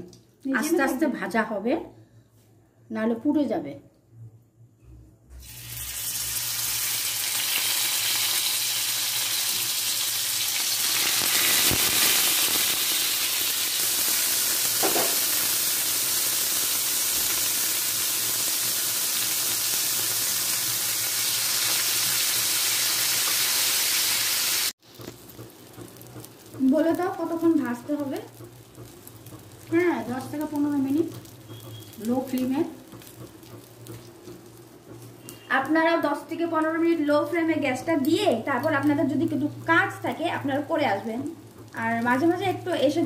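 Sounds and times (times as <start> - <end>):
food sizzling in hot oil: 5.3 - 43.0.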